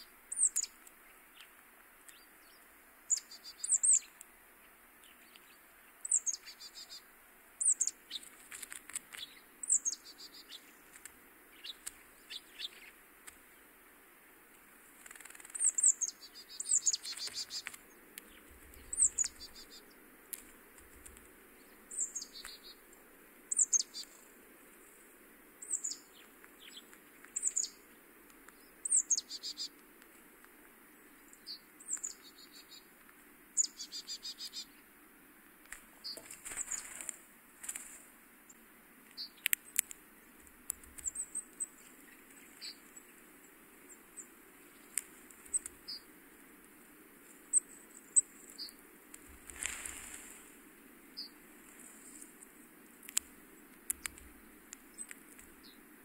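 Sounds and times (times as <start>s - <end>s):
songbird high downward call: 0.0s - 1.5s, 2.1s - 4.2s, 5.0s - 8.3s, 9.2s - 10.8s, 15.5s - 20.0s, 21.6s - 22.8s, 23.5s - 24.3s, 25.6s - 27.9s, 28.6s - 29.8s
buzzy bird rattle: 15.0s - 15.8s.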